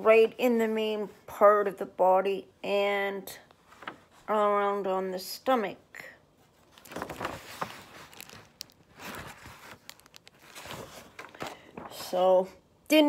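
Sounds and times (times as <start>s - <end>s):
paper rustling and crinkling: 6.4s - 12.3s.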